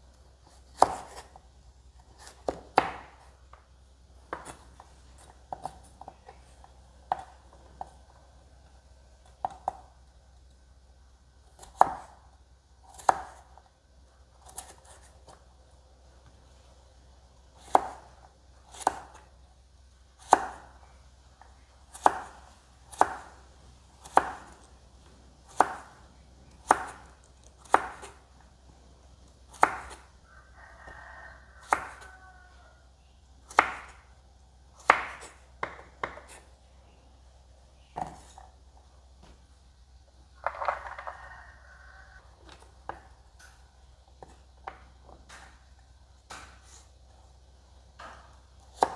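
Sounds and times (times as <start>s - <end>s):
knife chopping on wooden board: 0.7s - 1.4s, 2.2s - 3.3s, 11.6s - 12.2s, 12.9s - 13.5s, 17.6s - 18.1s, 20.2s - 20.6s, 21.9s - 23.3s, 24.0s - 24.6s, 25.5s - 25.9s, 26.6s - 28.2s, 29.5s - 30.0s, 33.5s - 34.0s, 34.8s - 36.4s, 46.3s - 46.8s, 48.0s - 48.9s.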